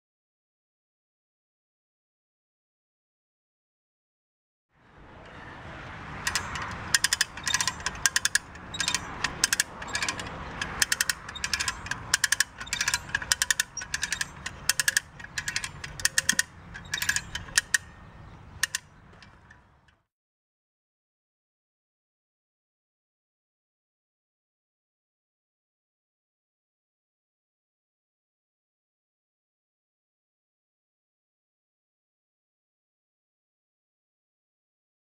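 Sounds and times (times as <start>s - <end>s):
lever winch ratcheting clicks: 6.2s - 20.0s.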